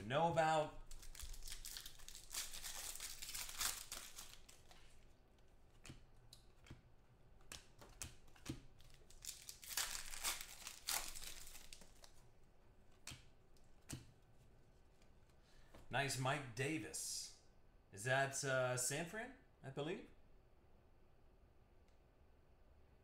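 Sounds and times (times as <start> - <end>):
foil wrapper crinkling and tearing: 0.8 - 5.0, 8.8 - 12.2
cards flicked by hand: 12.9 - 14.1.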